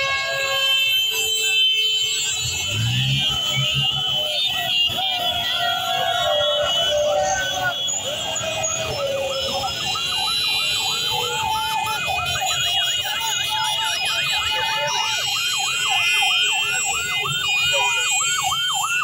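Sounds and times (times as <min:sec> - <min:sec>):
electronic sirens yelping: 0:00.0 - 0:19.0
motorcycle engines rumbling: 0:00.0 - 0:19.0.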